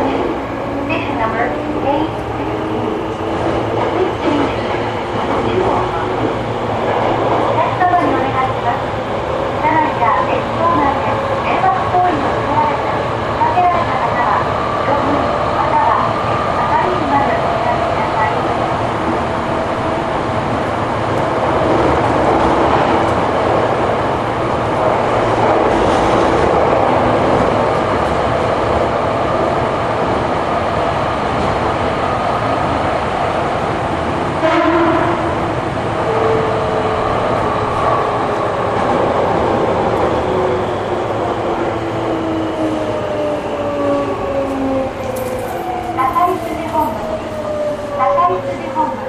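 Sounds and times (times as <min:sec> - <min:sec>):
train wheels rumbling on rail: 0:00.0 - 0:49.0
rail clack: 0:24.8 - 0:27.9, 0:44.4 - 0:47.7.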